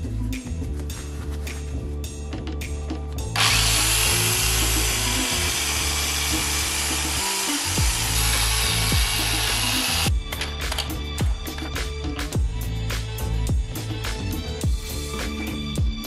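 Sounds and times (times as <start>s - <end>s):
background music: 0.0s - 16.0s
angle grinder with wire brush: 3.4s - 10.1s.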